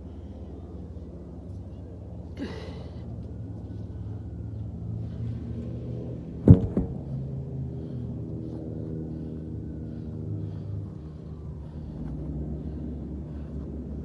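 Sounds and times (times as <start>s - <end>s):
steady low hum: 0.0s - 14.0s
tractor tire thudding on grass: 6.4s - 7.1s.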